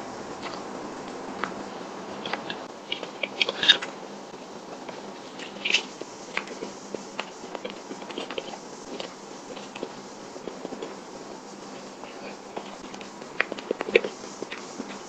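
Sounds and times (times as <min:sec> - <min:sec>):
wet mouth eating sounds: 0:00.4 - 0:00.7.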